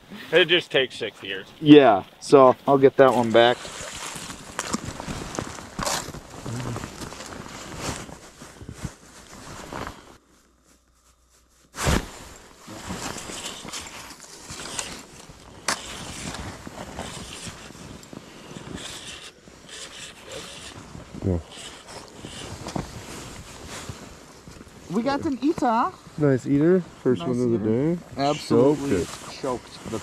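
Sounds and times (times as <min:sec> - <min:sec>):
clothing rustling: 0:03.3 - 0:26.2.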